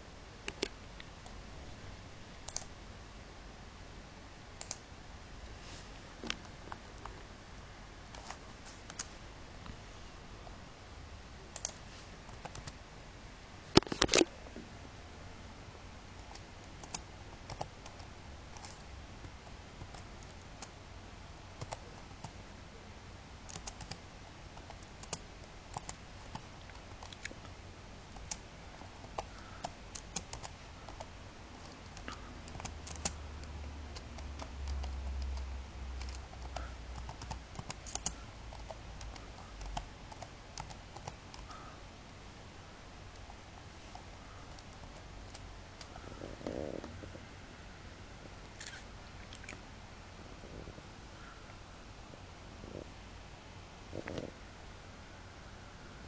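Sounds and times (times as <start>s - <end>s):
computer keyboard typing: 2.4s - 2.7s, 4.6s - 4.8s, 11.5s - 12.8s, 16.2s - 18.9s, 19.8s - 20.7s, 21.6s - 22.4s, 23.5s - 24.0s, 24.6s - 27.4s, 28.1s - 41.6s.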